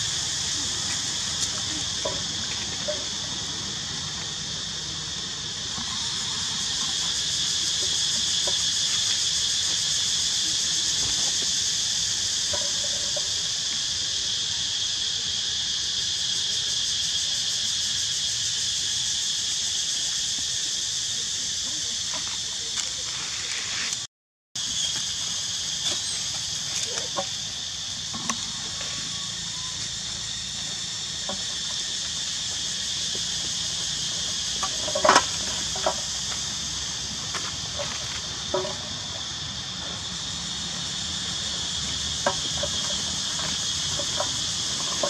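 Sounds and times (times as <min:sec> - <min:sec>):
high insect drone: 0:00.0 - 0:45.0.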